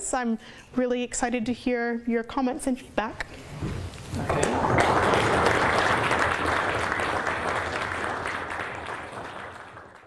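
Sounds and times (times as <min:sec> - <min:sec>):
audience applauding: 0:04.1 - 0:10.0.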